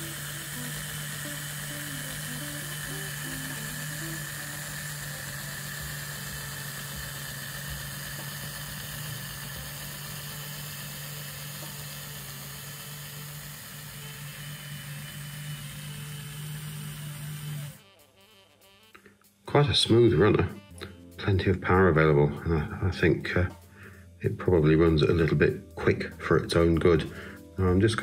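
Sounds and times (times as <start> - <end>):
model train motor humming: 0.0 - 18.0.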